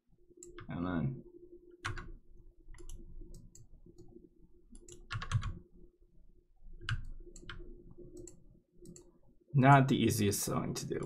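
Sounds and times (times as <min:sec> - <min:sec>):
faint steady hum: 0:00.0 - 0:11.0
computer mouse clicks: 0:02.7 - 0:05.6, 0:06.8 - 0:09.1.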